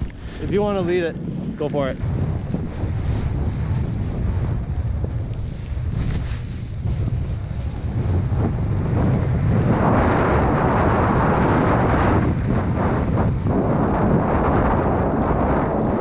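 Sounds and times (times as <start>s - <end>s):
snowboard hissing through snow: 0.0s - 1.6s, 5.4s - 13.6s
wind buffeting microphone: 0.0s - 16.0s.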